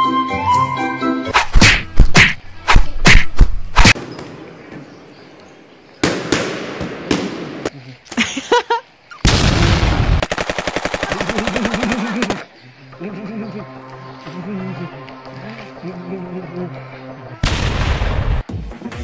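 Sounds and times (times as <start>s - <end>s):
machine gun firing: 9.3s - 12.4s.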